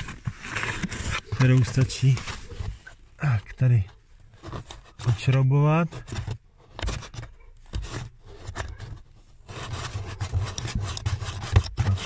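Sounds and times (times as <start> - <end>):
fingers rubbing plastic on felt: 0.0 - 12.0.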